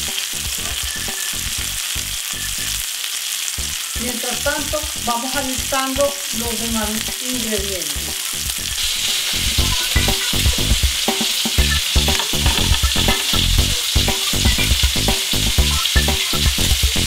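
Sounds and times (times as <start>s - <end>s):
fat crackling and popping: 0.0s - 17.0s
meat sizzling in a pan: 0.0s - 17.0s.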